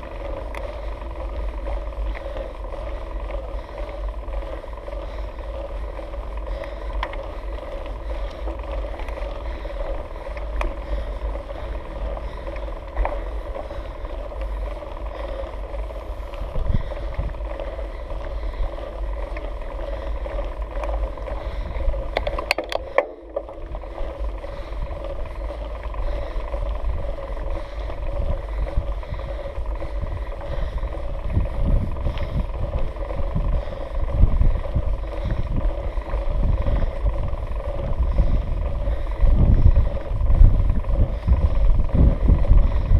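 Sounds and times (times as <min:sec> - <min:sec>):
bike clicks and knocks: 0:00.0 - 0:39.6
steady hum: 0:00.0 - 0:42.9
wind on microphone: 0:15.7 - 0:19.4, 0:21.2 - 0:42.9.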